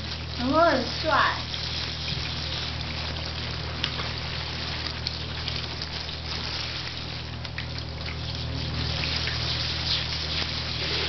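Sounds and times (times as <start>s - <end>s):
low steady hum: 0.0s - 11.0s
water splashes and drips: 0.0s - 11.0s
shower head spraying water: 8.1s - 11.0s.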